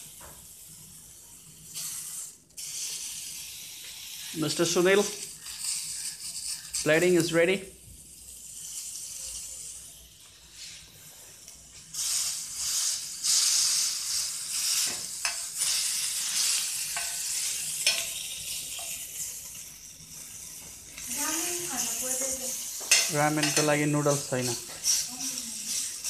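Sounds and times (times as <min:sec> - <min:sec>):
meat skewers sizzling in a pan: 0:00.0 - 0:26.0
metal spoon clicking on pan: 0:17.8 - 0:18.2.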